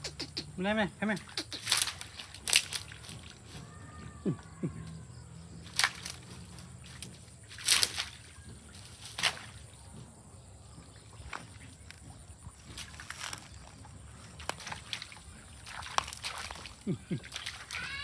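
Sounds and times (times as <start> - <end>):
steady low hum: 0.0 - 17.7
dog splashing in puddle: 1.1 - 3.9, 5.6 - 9.9, 11.1 - 18.0.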